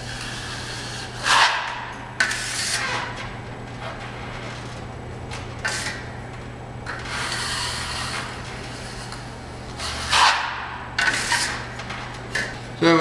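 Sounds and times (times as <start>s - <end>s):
trowel scraping ceiling: 0.0s - 4.7s, 5.6s - 6.1s, 6.9s - 11.7s.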